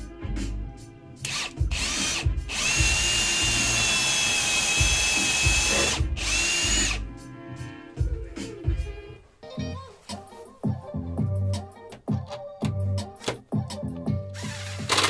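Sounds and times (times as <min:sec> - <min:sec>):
background music: 0:00.0 - 0:15.0
cordless drill whining: 0:01.2 - 0:07.0, 0:14.4 - 0:15.0.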